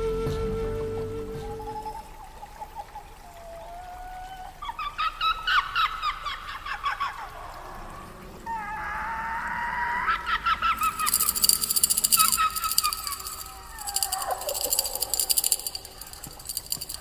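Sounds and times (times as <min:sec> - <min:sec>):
fast high rattle: 0:10.8 - 0:17.0.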